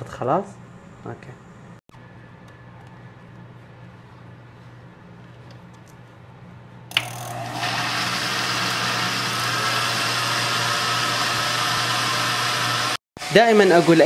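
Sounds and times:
blender switch click: 6.9 - 7.5
blender motor running: 6.9 - 14.0.

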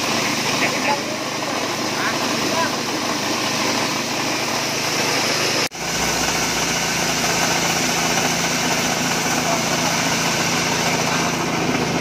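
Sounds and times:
small petrol engine running: 0.0 - 12.0.

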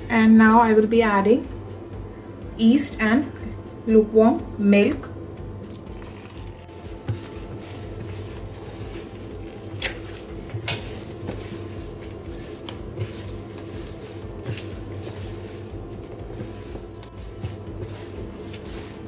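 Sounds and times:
hand squishing sticky dough: 5.6 - 19.0.

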